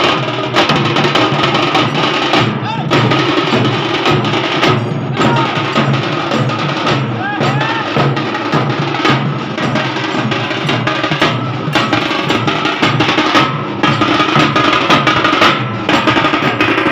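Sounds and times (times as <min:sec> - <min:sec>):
barrel drums beaten with sticks: 0:00.0 - 0:16.9.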